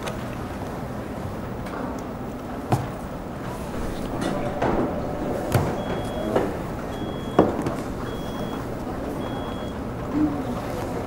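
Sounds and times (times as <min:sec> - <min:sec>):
steady background rumble: 0:00.8 - 0:11.0
sharp knocks: 0:03.8 - 0:09.8
high electronic beeps: 0:03.8 - 0:10.6.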